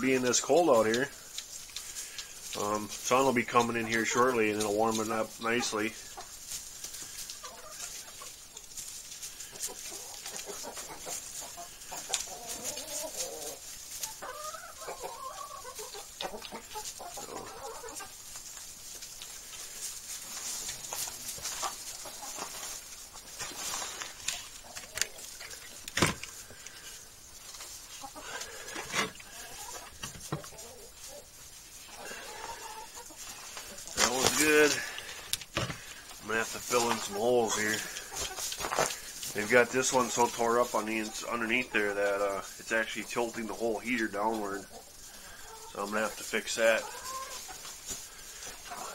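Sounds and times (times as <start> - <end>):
hens clucking: 0.0 - 48.9
small ticks: 0.8 - 3.0, 24.0 - 29.8.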